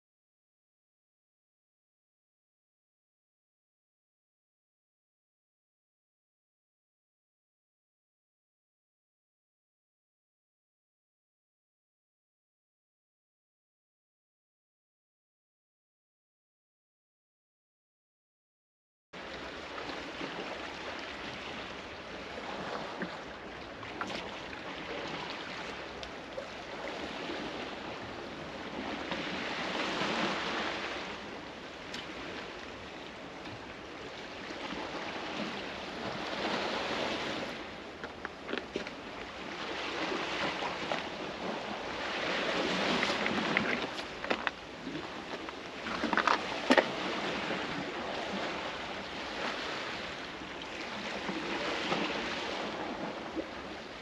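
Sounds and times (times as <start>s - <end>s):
waves washing against rocks: 34.4s - 54.0s.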